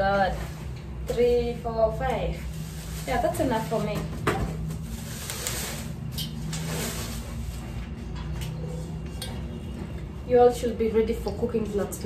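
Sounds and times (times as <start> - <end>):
low steady hum: 0.0 - 12.0
bubble wrap rustling and crinkling: 1.8 - 8.0.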